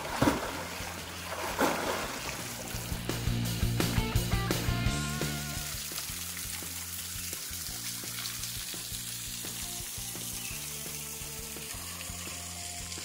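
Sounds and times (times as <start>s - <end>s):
water running over boulders: 0.0s - 3.4s, 4.6s - 13.0s
background music with beat: 2.8s - 13.0s.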